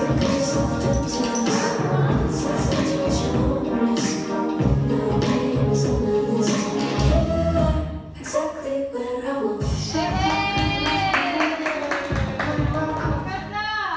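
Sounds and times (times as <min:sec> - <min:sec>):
person singing: 0:00.0 - 0:13.3.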